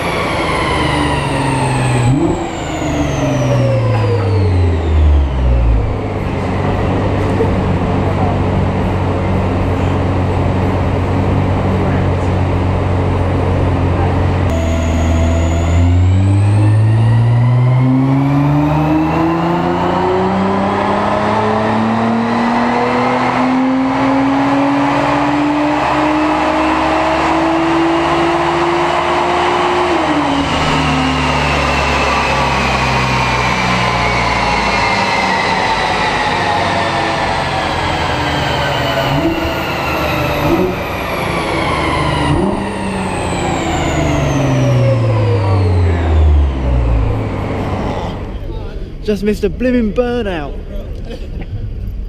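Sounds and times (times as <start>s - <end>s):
car engine revving on dyno: 0.0s - 48.6s.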